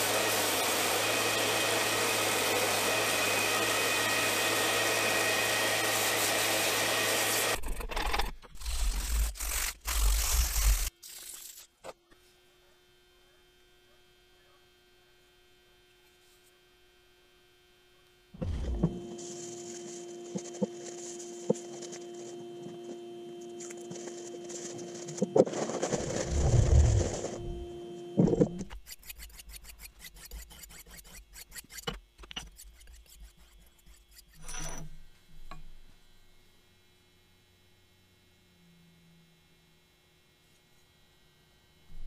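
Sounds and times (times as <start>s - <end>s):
steady hum: 17.5s - 34.2s.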